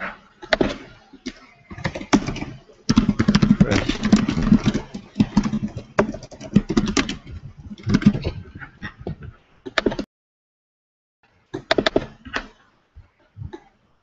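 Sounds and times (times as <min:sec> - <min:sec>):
computer keyboard typing: 0:01.7 - 0:08.3.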